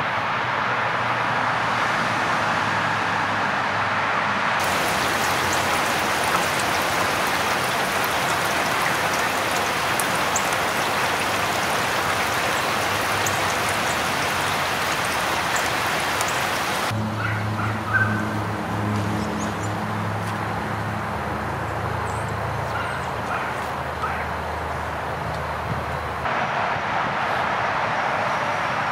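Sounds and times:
steady rushing hiss: 0:04.6 - 0:16.9.

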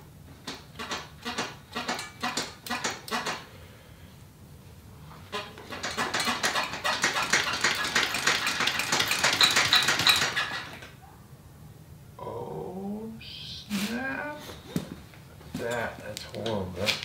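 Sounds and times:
short high squeaks: 0:00.8 - 0:03.4, 0:05.3 - 0:11.0
motorcycle suspension rattling: 0:05.4 - 0:10.9.

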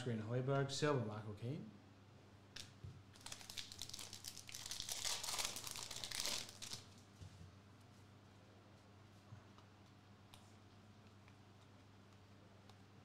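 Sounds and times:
foil card pack crinkling: 0:03.2 - 0:06.9.

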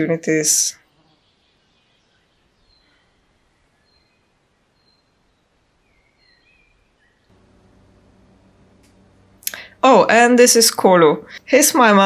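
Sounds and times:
birds chirping and whistling: 0:01.0 - 0:07.3
low steady hum: 0:01.5 - 0:12.0.

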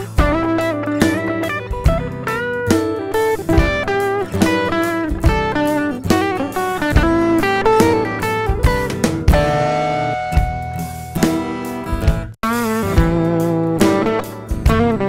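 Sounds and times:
bluesy electric guitar line: 0:00.0 - 0:15.0
sharp percussive hits: 0:00.2 - 0:13.2.

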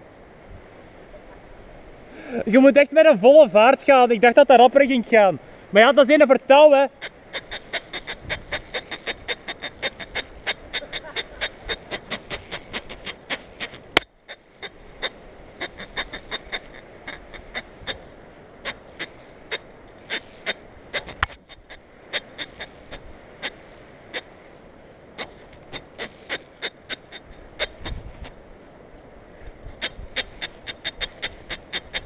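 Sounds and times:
pulley clicking on steel cable: 0:07.0 - 0:24.3, 0:25.2 - 0:28.4, 0:29.7 - 0:32.0.

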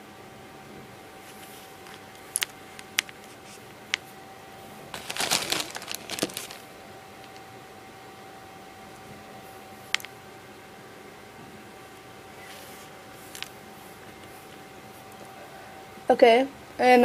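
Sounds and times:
rustling: 0:04.9 - 0:07.4, 0:12.4 - 0:15.2.

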